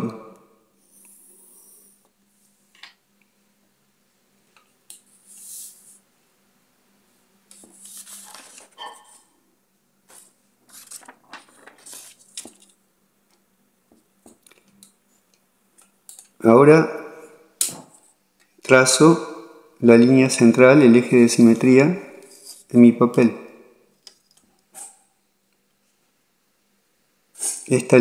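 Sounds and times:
paper rustling: 7.5 - 9.2, 10.0 - 12.8.

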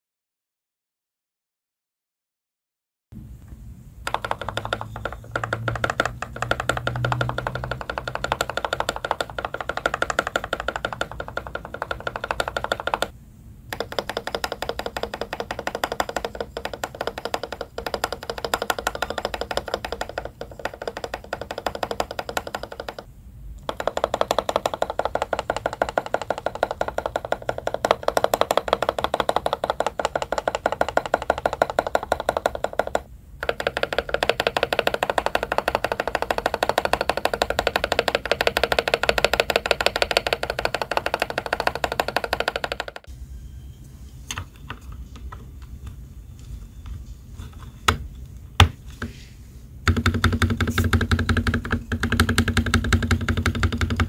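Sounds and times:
keyboard spacebar pressing: 4.1 - 13.1, 13.7 - 43.1, 49.9 - 54.0.

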